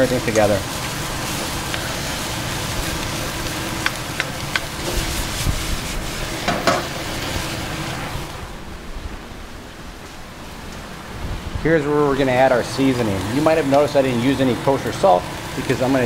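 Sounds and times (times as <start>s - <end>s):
food sizzling in a wok: 0.0s - 8.5s, 12.5s - 16.0s.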